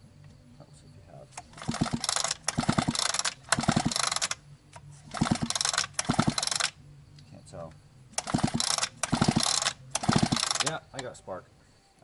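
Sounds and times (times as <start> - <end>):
chainsaw recoil starter ratcheting: 1.4 - 4.4, 5.1 - 6.8, 8.2 - 11.1.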